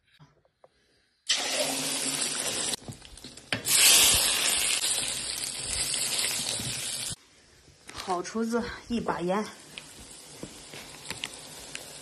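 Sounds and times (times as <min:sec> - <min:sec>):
egg sizzling in hot oil: 0:01.3 - 0:07.2, 0:09.6 - 0:12.0.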